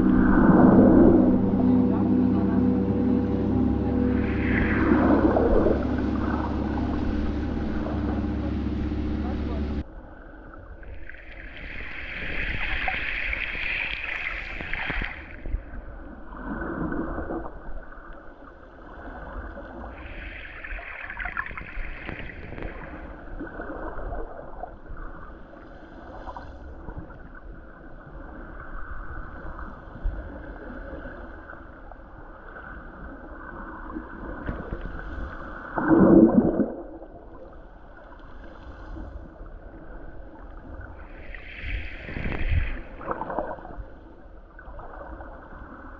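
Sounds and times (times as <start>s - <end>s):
muffled underwater gurgling: 0.0s - 9.8s, 34.1s - 37.5s.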